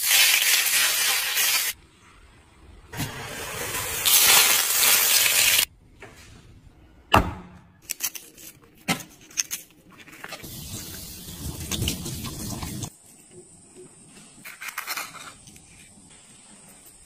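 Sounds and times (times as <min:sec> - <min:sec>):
hot oil sizzling: 0:00.0 - 0:01.8, 0:03.0 - 0:05.7, 0:10.4 - 0:12.9.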